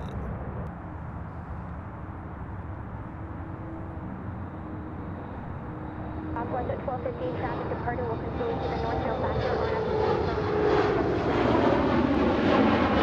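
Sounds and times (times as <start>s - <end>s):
faint hum: 0.0s - 10.6s
distant jet engine rumble: 0.0s - 13.0s.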